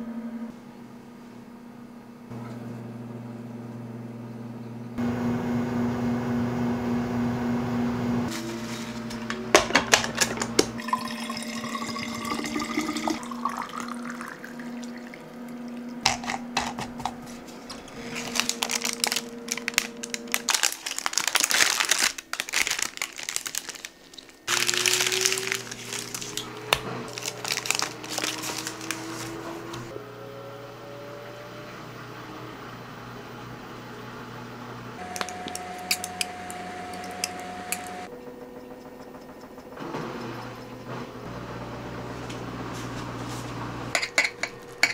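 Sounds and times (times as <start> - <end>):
electrical appliance hum: 0.0 - 44.9
water running from a tap: 10.7 - 15.9.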